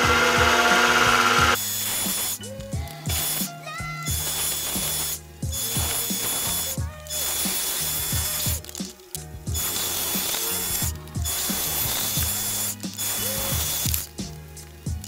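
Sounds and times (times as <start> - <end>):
lathe motor whirring: 0.0 - 2.3
background music with beat: 0.0 - 15.0.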